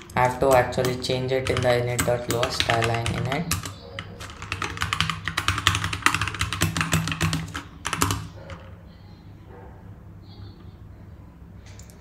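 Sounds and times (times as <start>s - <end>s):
keyboard typing: 0.0s - 8.8s.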